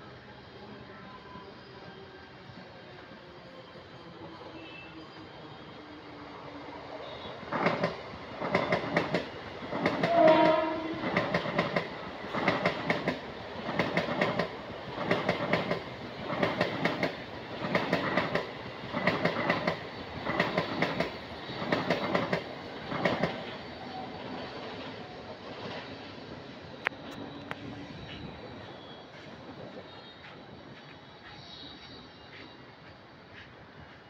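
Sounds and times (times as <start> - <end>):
train horn: 4.6 - 5.0, 9.8 - 11.4.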